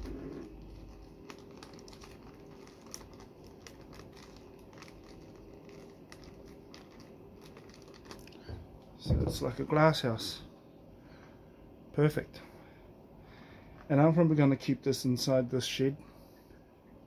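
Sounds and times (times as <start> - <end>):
tape being stretched: 0.0 - 8.6
plastic bag crinkling: 0.0 - 9.7.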